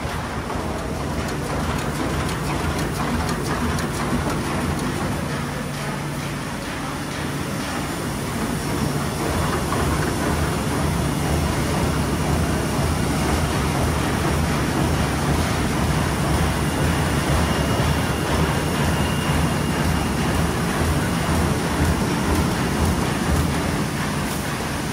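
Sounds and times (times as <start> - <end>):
sewing machine mechanical clatter: 0.0 - 5.7.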